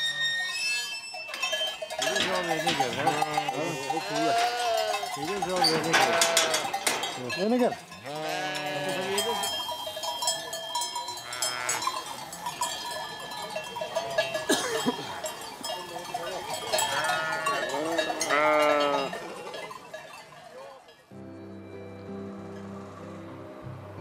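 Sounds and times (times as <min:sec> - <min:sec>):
bells clanking: 0:00.0 - 0:24.0
flock of sheep bleating: 0:02.0 - 0:07.1, 0:07.8 - 0:09.9, 0:11.0 - 0:19.6.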